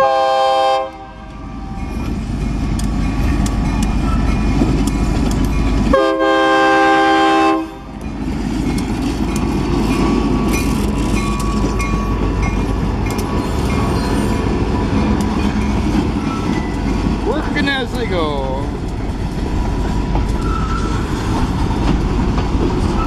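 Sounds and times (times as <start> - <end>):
locomotive horn blast: 0.0 - 1.8, 5.9 - 8.0
diesel locomotive rumbling: 0.0 - 23.0
wheels clicking over rail joints: 1.2 - 6.2, 7.9 - 23.0.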